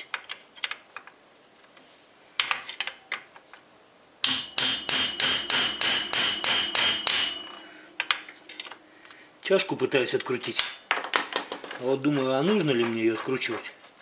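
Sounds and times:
hammer striking metal wrench: 4.2s - 8.8s.

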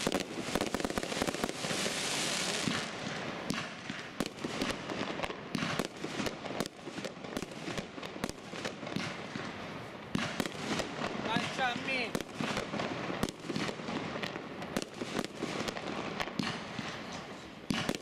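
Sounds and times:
steady hiss: 0.0s - 3.4s.

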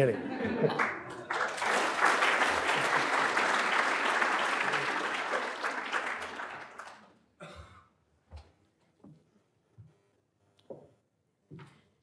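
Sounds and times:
audience applause: 0.5s - 7.2s.

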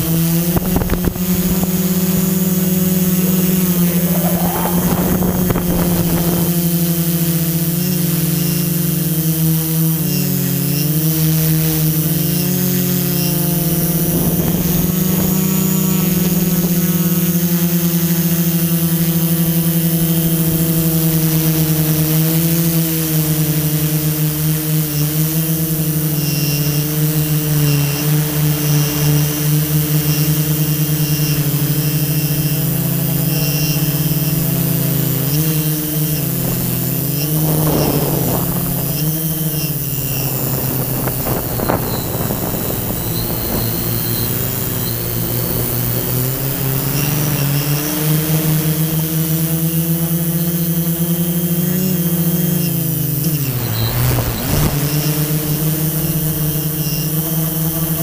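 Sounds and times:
drone propellers whining: 0.0s - 58.0s
rush of noise: 2.2s - 7.5s.

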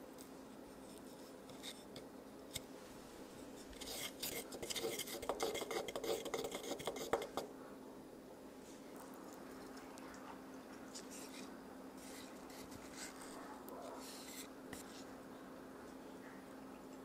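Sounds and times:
metal spoon scraping a dish: 3.7s - 7.4s.

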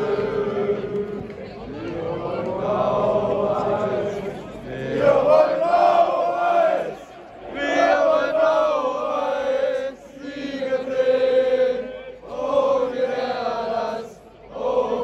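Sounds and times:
crowd chanting: 0.0s - 15.0s.

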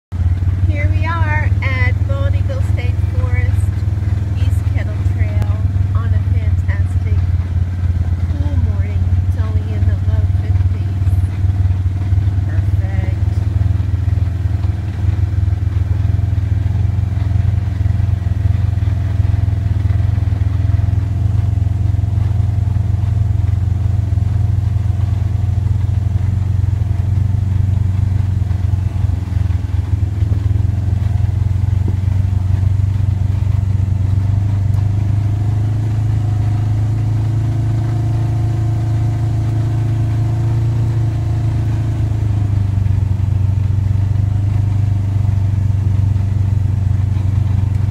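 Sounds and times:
atv engine running: 0.0s - 47.9s.

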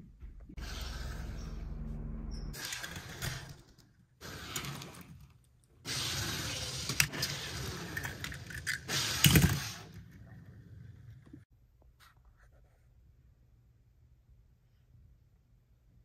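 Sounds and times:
metal toy cars clicking: 6.6s - 9.6s.

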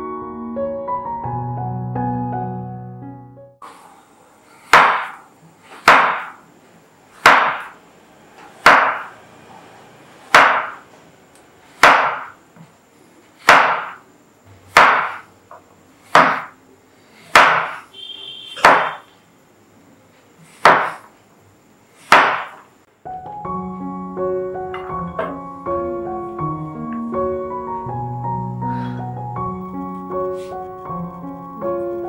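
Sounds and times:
knife chopping on wooden board: 4.7s - 6.4s, 7.2s - 7.8s, 8.6s - 9.1s, 10.3s - 10.8s, 11.8s - 12.4s, 13.4s - 14.0s, 14.7s - 15.3s, 16.1s - 16.6s, 17.3s - 17.9s, 18.6s - 19.0s, 20.6s - 21.1s, 22.1s - 22.6s.

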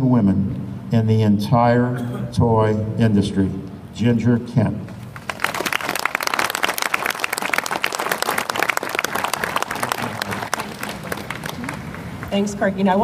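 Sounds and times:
audience applauding: 5.1s - 12.3s.

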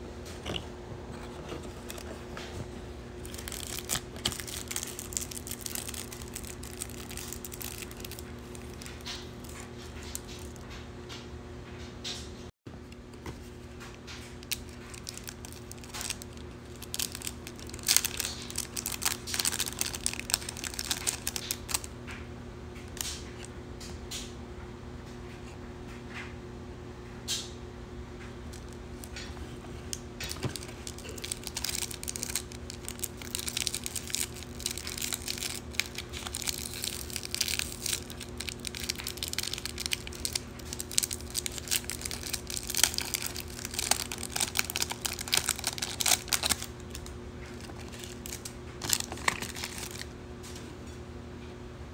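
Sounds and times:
steady low hum: 0.0s - 51.9s
plastic wrap crackling: 3.2s - 10.7s, 13.4s - 21.9s, 29.9s - 50.1s.

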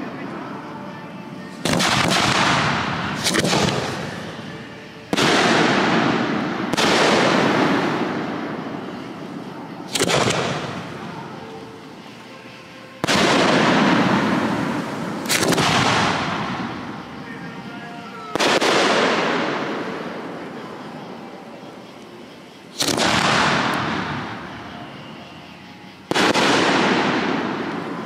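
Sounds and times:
firework booms with echo: 1.6s - 11.4s, 13.0s - 17.2s, 17.9s - 20.6s, 22.7s - 24.6s, 26.0s - 28.0s.

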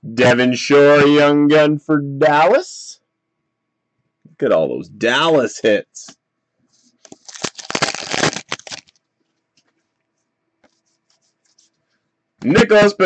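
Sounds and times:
foil wrapper tearing and crinkling: 7.0s - 9.0s.

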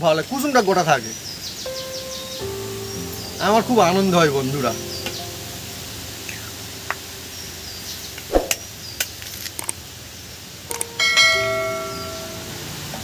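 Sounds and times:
bell-like chime sound effect: 10.9s - 12.9s.

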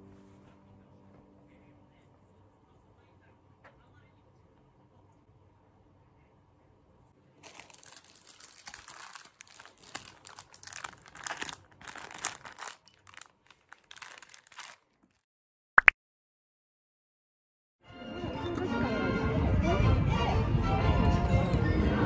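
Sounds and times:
packaging crinkling: 7.4s - 15.2s.

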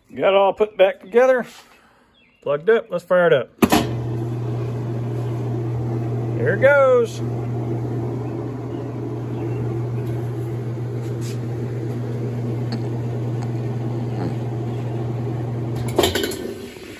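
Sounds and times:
washing machine humming: 3.6s - 16.9s.

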